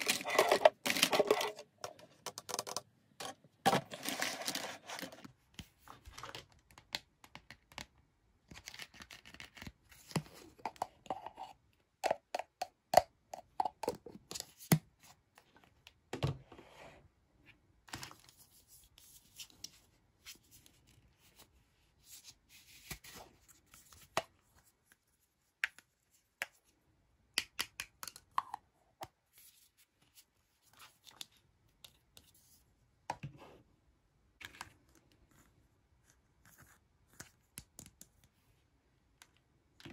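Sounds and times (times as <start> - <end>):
plastic toy cups clicking: 0.0 - 2.9
plastic rubbing and scraping: 0.0 - 5.3.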